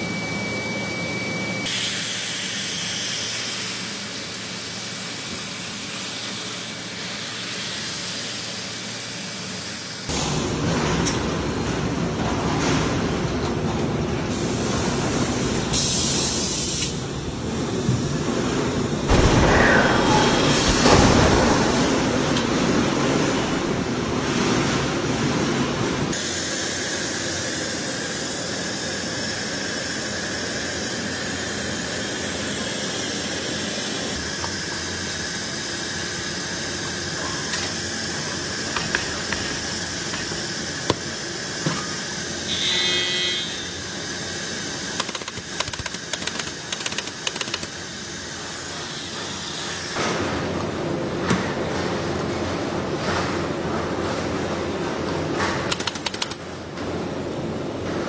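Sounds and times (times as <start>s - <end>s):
air tool hiss: 15.8s - 17.0s
machinery running unevenly: 17.4s - 26.0s.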